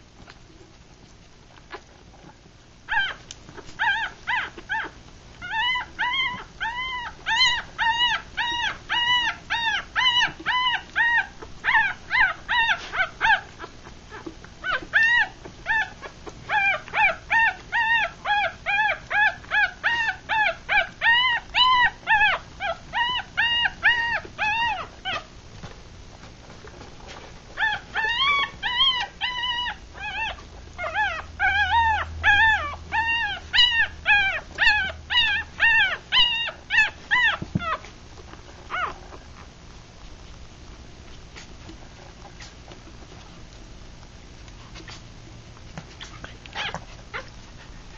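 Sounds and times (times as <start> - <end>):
puppies squeaking and whimpering: 2.9 - 25.4, 26.3 - 39.5, 44.6 - 45.1, 45.8 - 47.9.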